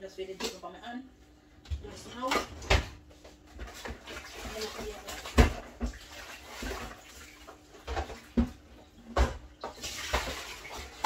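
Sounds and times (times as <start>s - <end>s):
pots and dishes clattering: 6.6s - 11.0s.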